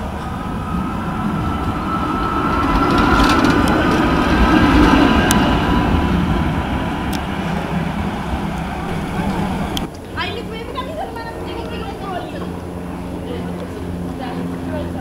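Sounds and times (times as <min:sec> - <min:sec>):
tram wheels rumbling on rails: 0:00.0 - 0:15.0
faint high whine: 0:05.4 - 0:14.5.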